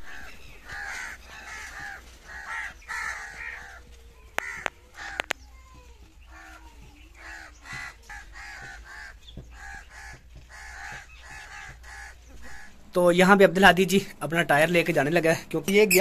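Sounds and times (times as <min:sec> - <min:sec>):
crows cawing: 0:00.0 - 0:05.4, 0:06.3 - 0:12.8.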